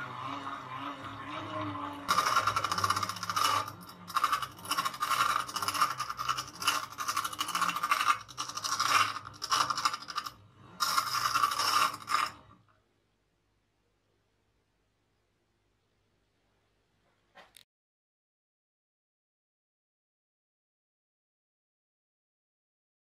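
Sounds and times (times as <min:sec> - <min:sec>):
steel tool scraping grinding wheel: 0:00.0 - 0:12.6.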